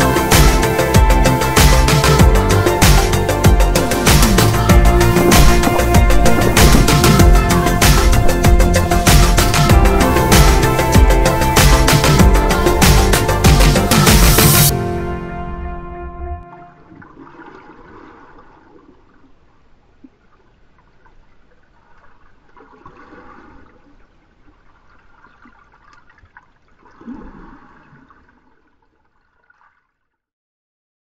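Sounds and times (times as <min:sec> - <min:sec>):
muffled underwater sloshing: 0:16.4 - 0:30.1.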